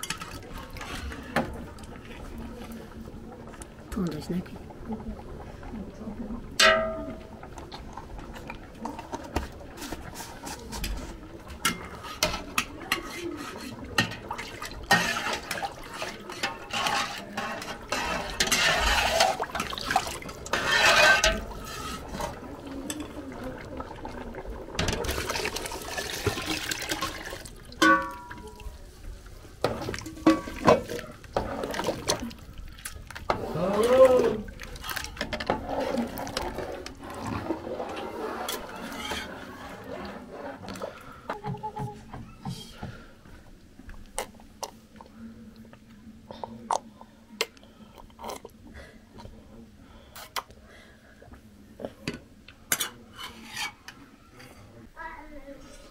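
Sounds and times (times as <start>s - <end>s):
liquid sloshing in pots: 0.0s - 45.8s, 47.4s - 54.5s
metal ladle clinking on pots: 6.6s - 7.3s, 11.6s - 22.3s, 27.7s - 28.7s, 29.6s - 31.0s.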